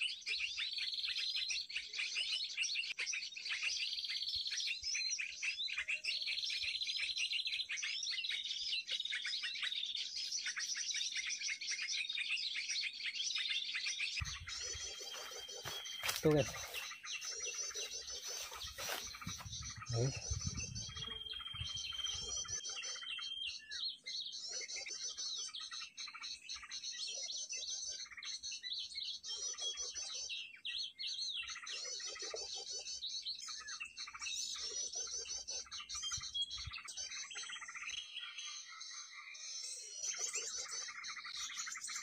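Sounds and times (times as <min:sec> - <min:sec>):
songbirds chirping and twittering: 0:00.0 - 0:42.0
wind rumble on microphone: 0:18.8 - 0:22.6.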